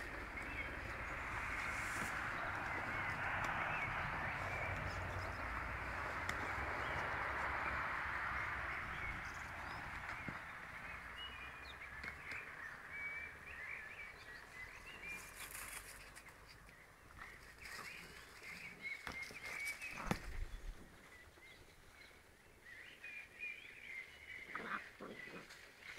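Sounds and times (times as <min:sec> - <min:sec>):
steady rushing noise: 0:00.0 - 0:10.9
small birds chirping: 0:00.0 - 0:25.9.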